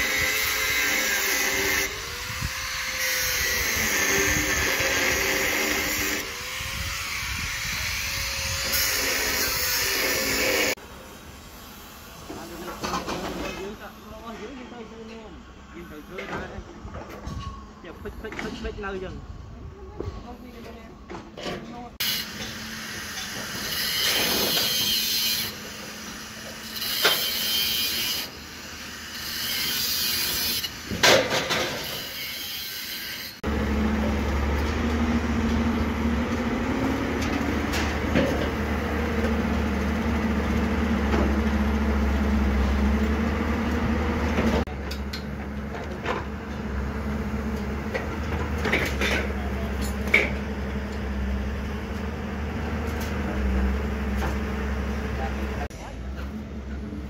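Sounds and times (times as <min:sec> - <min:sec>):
heavy diesel engine running: 0:33.5 - 0:57.0.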